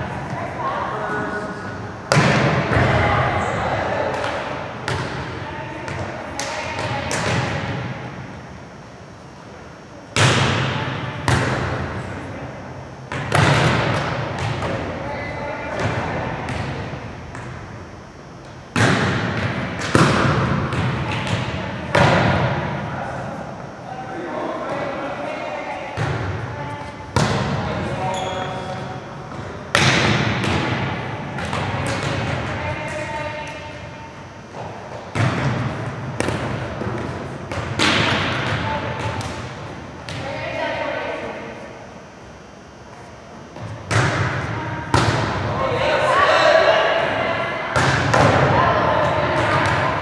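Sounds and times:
volleyballs being struck: 2.1 - 3.0, 4.0 - 8.0, 10.2 - 12.1, 13.1 - 15.0, 18.4 - 22.8, 26.0 - 33.8, 34.5 - 40.3, 43.6 - 45.6, 47.7 - 50.0.

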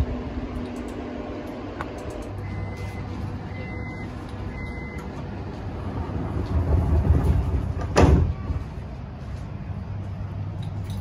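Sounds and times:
train doors sliding: 4.1 - 9.2
train doors thudding shut: 6.1 - 8.8.

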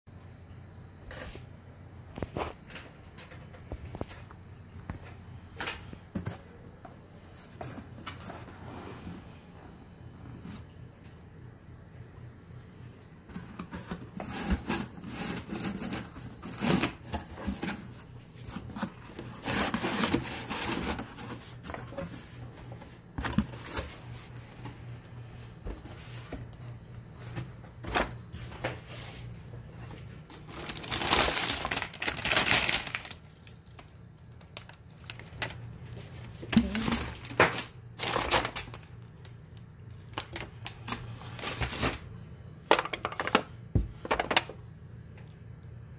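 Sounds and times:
paper bag rustling: 13.2 - 39.4.

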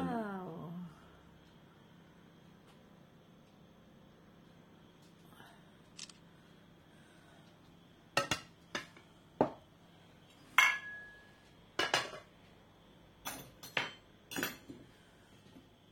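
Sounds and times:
dishes and cutlery clinking: 10.6 - 12.3, 13.2 - 14.8.

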